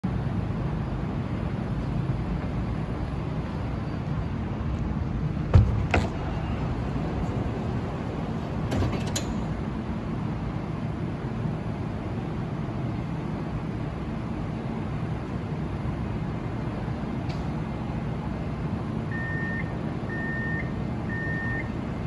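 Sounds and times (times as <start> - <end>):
tram hum: 0.0 - 22.0
door mechanism clicks: 8.7 - 9.5.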